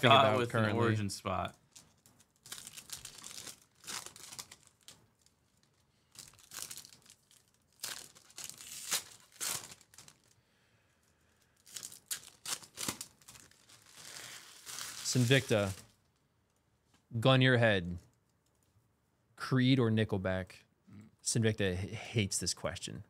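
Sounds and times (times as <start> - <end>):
foil wrappers tearing and crinkling: 1.7 - 10.4, 11.6 - 16.0.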